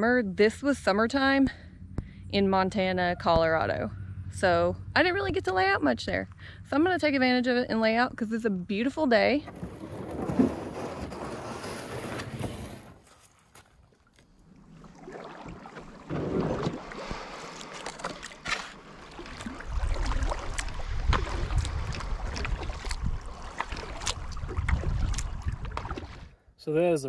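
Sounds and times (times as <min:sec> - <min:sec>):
paddle strokes splashing: 0:09.5 - 0:26.3
wind rumble on microphone: 0:19.4 - 0:26.3.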